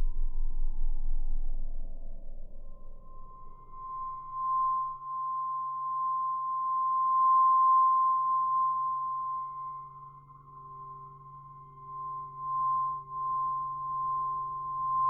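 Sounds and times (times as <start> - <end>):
low humming drone: 0.0 - 5.0, 10.2 - 15.0
faint pulsing middle tone: 0.0 - 15.0.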